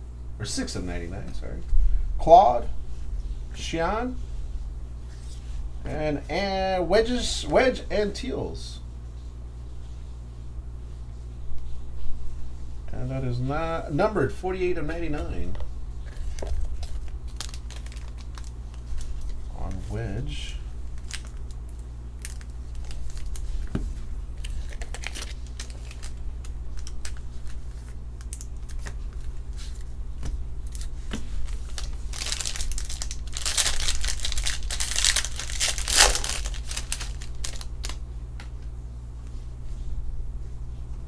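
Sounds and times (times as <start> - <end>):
steady low hum: 0.0 - 41.0
foil wrapper crinkling and tearing: 16.1 - 19.5, 20.9 - 23.7, 24.3 - 29.9, 30.6 - 38.0
cards and sleeves shuffled: 30.7 - 38.0.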